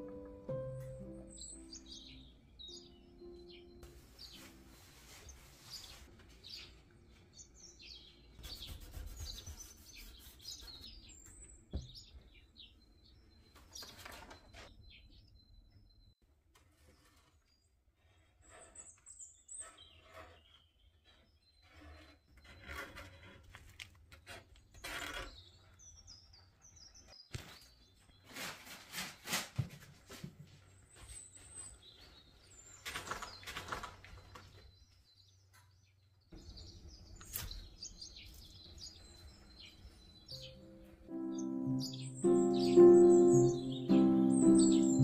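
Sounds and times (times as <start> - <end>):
small birds chirping: 0.5 - 16.2, 16.8 - 23.3, 24.7 - 28.5, 30.5 - 45.0
rustling and handling noise: 3.8 - 6.9.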